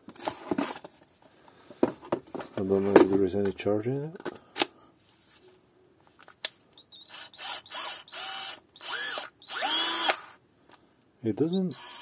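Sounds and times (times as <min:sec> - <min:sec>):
cordless drill motor spinning: 0:06.8 - 0:10.4, 0:11.6 - 0:12.0.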